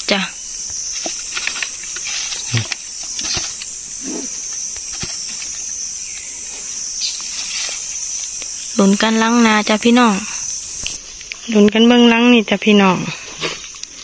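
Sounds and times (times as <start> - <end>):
insects chirring: 0.0 - 14.0
taps and rustles of net: 0.7 - 3.8, 4.6 - 5.7.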